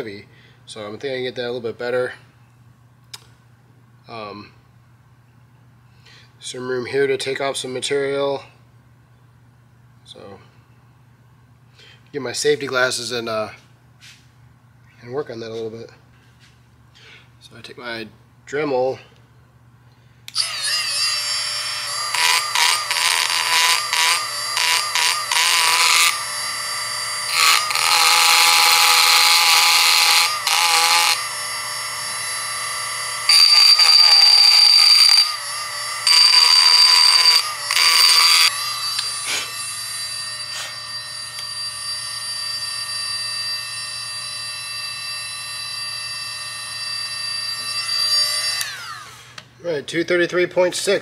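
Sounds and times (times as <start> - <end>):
bit grinding into metal: 20.3 - 44.1
rotary tool high-pitched whine: 20.3 - 49.5.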